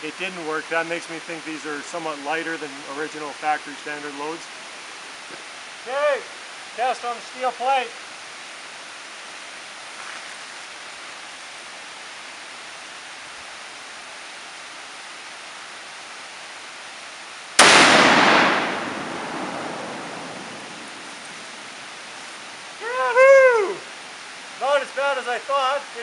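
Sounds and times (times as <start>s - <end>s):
steady background hiss: 0.0s - 26.0s
rifle shot with echo: 17.6s - 21.0s.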